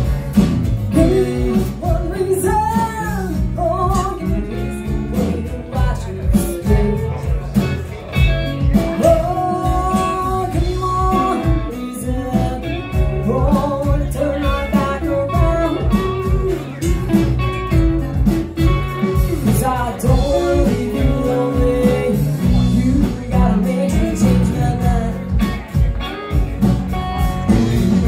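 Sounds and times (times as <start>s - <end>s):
acoustic guitar: 0.0s - 28.0s
electric guitar: 0.0s - 28.0s
woman singing: 0.9s - 7.5s, 9.0s - 17.0s, 19.1s - 25.6s.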